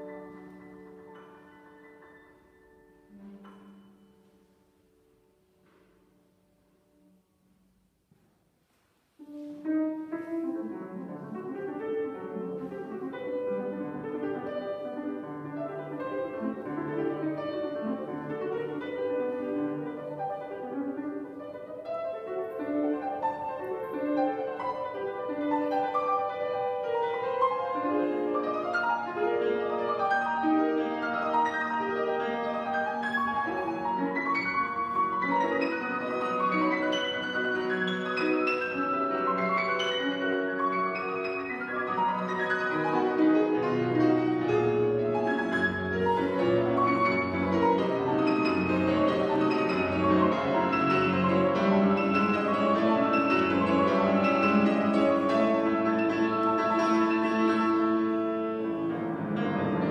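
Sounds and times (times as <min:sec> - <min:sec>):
grand piano playing classical music: 0:00.0 - 0:59.9.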